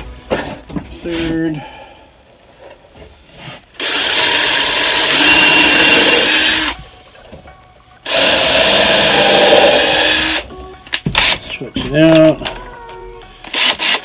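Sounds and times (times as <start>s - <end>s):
cordless drill boring into wood: 3.8s - 6.8s, 8.1s - 10.4s.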